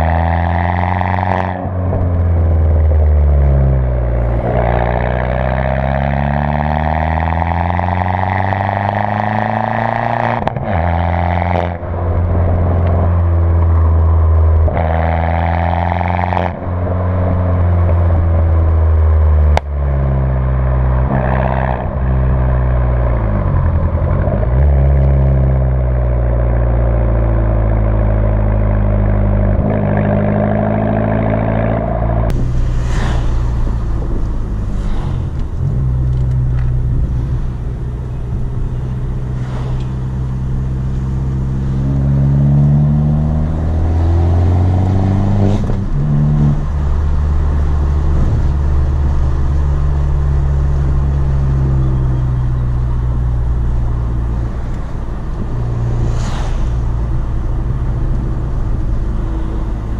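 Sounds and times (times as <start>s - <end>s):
car engine accelerating through gears: 0.0s - 59.9s
rushing noise: 32.3s - 42.4s, 53.3s - 59.9s.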